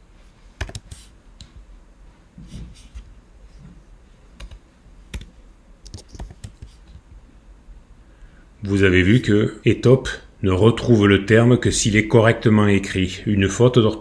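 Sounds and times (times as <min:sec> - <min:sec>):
computer keyboard typing: 0:00.6 - 0:01.0, 0:04.4 - 0:06.8.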